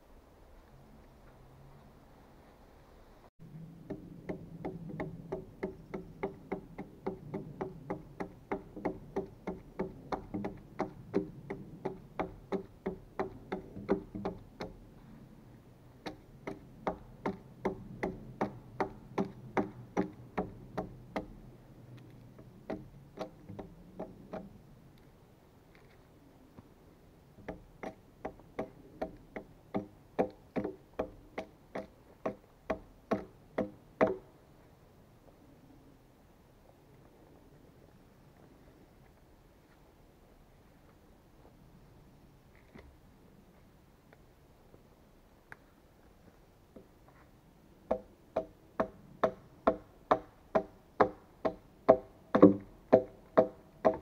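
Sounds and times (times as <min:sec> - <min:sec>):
hand tool knocking on log: 0:03.9 - 0:14.8, 0:16.0 - 0:21.3, 0:27.4 - 0:34.2, 0:47.9 - 0:54.0.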